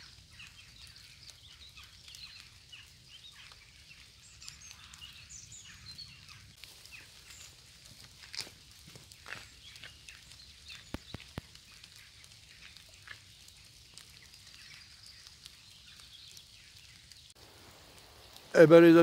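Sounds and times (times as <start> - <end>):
sharp drip-like ticks: 0.0 - 18.5
bird chirps: 0.3 - 7.5, 9.3 - 17.4
soft high rain hiss: 17.2 - 19.0.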